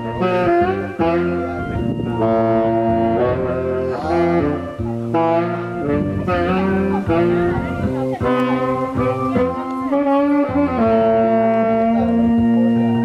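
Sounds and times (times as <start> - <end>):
instrumental background music: 0.0 - 13.0.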